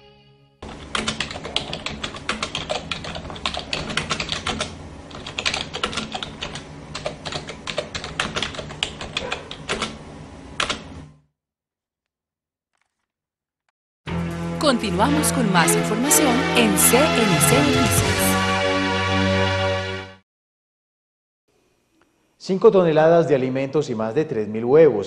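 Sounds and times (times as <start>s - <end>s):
rapid keyboard key clicks: 0.7s - 10.0s, 10.6s - 10.9s.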